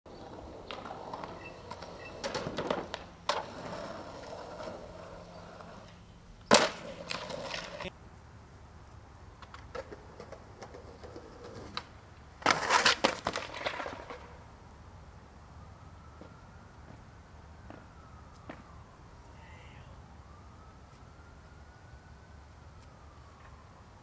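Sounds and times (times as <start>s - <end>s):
skateboard clacking on concrete: 0.1s - 7.9s, 9.4s - 14.4s
skateboard tumbling on pavement: 0.1s - 7.9s, 9.4s - 14.6s
skateboard wheels rolling: 0.1s - 7.9s, 9.3s - 14.8s.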